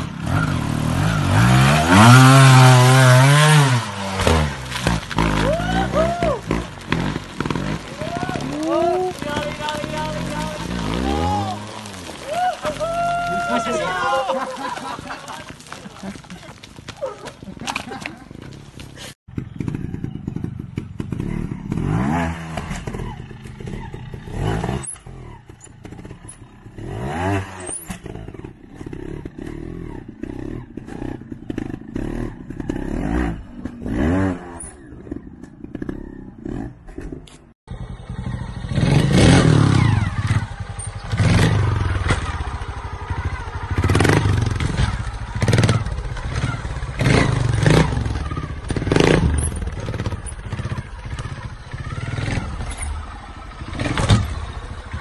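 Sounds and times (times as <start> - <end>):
motorcycle engines revving: 0.0 - 55.0
motorcycles landing on concrete: 1.6 - 19.2, 39.0 - 55.0.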